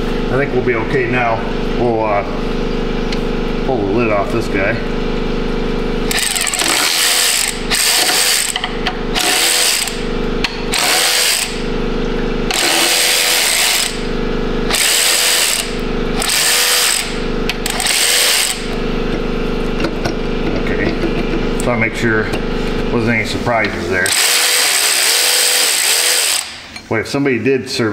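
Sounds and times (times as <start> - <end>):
electric ratchet bursts: 6.0 - 11.8, 12.5 - 19.0, 24.0 - 26.8.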